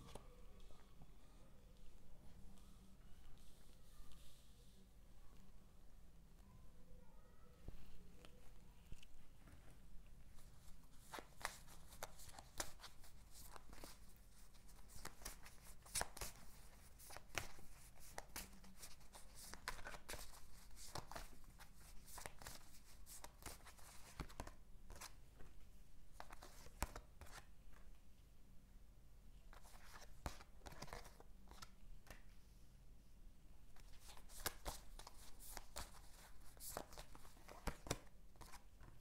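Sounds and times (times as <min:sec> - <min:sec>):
cards being shuffled: 0:11.0 - 0:25.2, 0:26.2 - 0:27.4, 0:29.6 - 0:32.2, 0:33.8 - 0:39.0.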